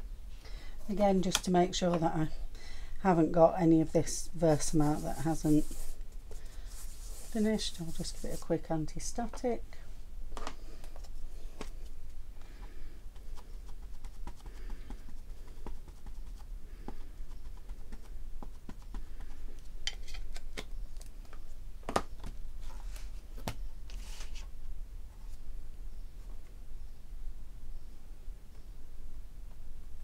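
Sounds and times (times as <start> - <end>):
soft rustles: 3.9 - 19.7, 22.5 - 25.5.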